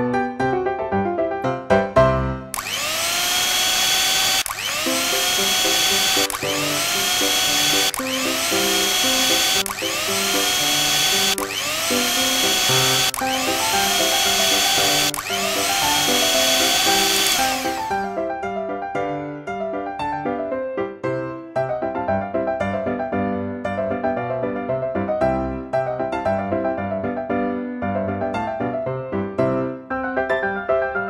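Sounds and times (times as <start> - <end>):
piano music: 0.0 - 2.5, 4.9 - 31.0
toy blender motor whirring: 2.5 - 18.2.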